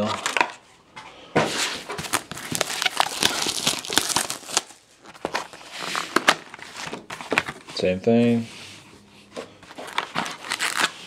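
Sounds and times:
plastic wrapping crinkling and tearing: 1.9s - 7.6s, 9.7s - 11.0s.

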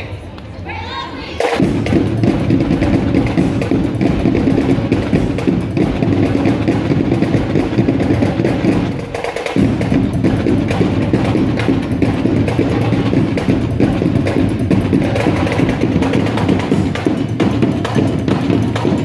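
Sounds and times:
heavy drumming: 1.3s - 19.0s.

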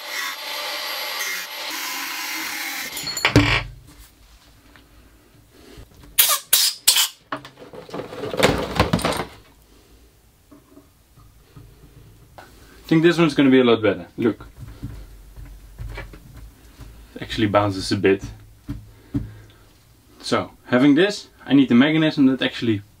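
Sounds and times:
angle grinder cutting metal: 0.0s - 3.2s.

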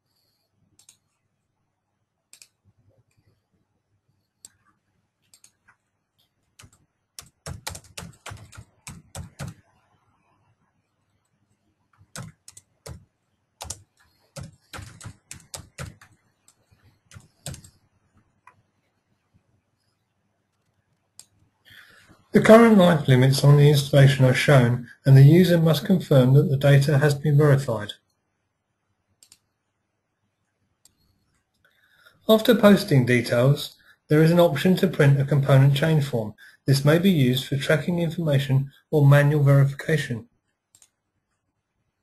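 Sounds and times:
typing on computer keyboard: 6.5s - 9.7s, 12.0s - 17.8s.

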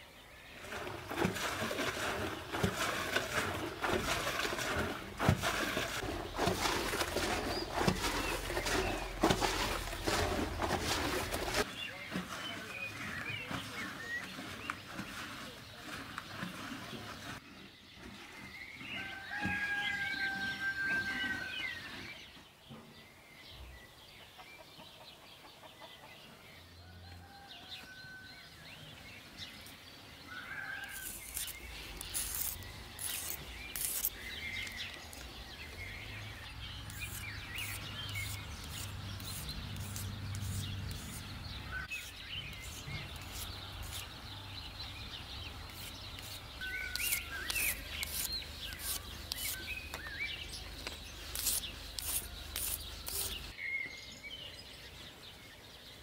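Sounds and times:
songbirds calling and whistling: 0.0s - 56.0s
cloth rubbing eggshells: 30.8s - 34.8s, 51.1s - 53.5s.

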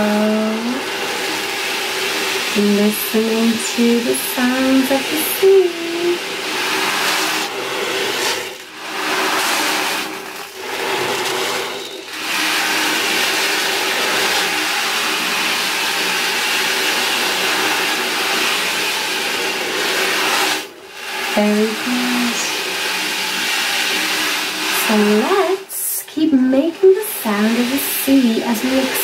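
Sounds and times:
ocean drum beads rolling: 3.7s - 25.3s.

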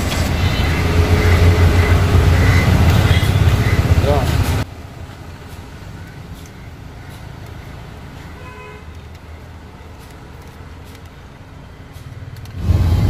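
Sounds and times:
vehicle horn toot: 0.0s - 4.1s, 8.4s - 8.9s
road traffic engine rumble: 0.0s - 13.0s.

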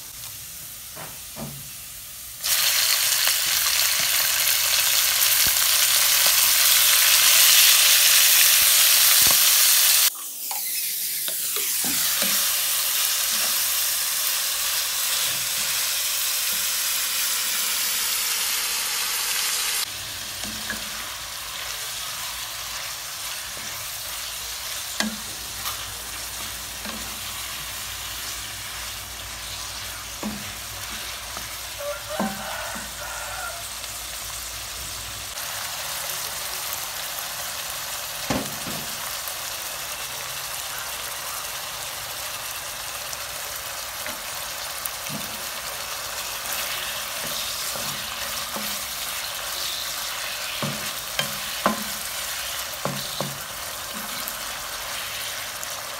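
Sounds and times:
chicken sizzling in oil: 0.0s - 55.9s
spatula scraping wok: 6.8s - 33.8s, 44.0s - 55.9s.

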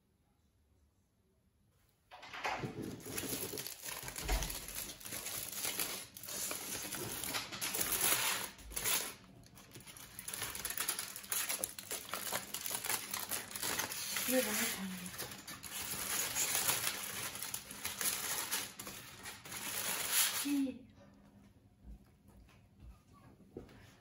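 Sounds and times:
aluminium foil crinkling: 2.9s - 20.7s.

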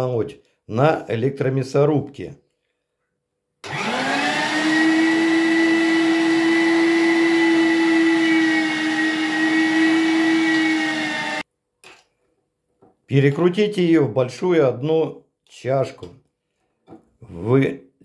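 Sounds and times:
electric meat grinder motor: 3.6s - 11.4s.

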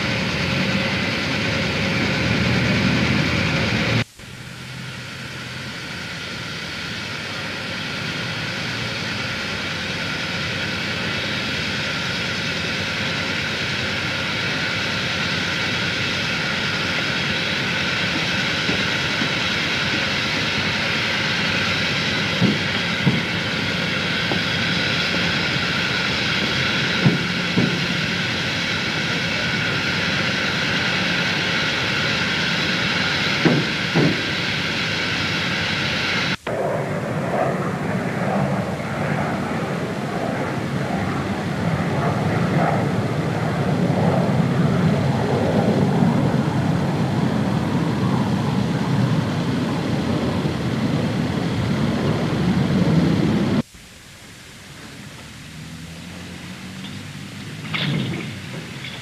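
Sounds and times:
steady rushing drone: 0.0s - 59.0s.

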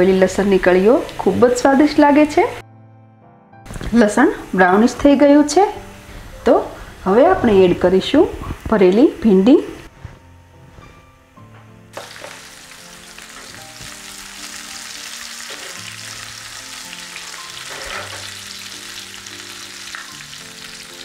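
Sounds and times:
okra sizzling in hot oil: 11.9s - 21.0s.

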